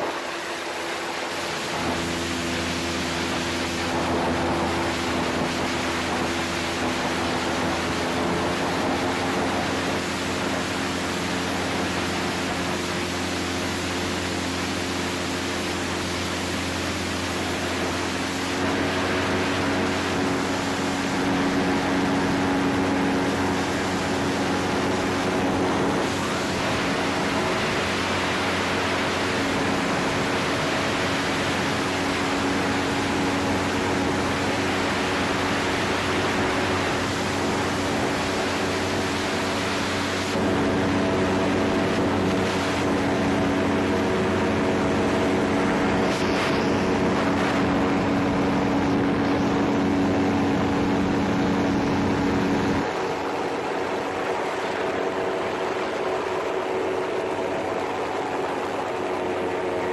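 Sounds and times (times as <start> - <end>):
ultralight engine and propeller droning: 0.0 - 59.9.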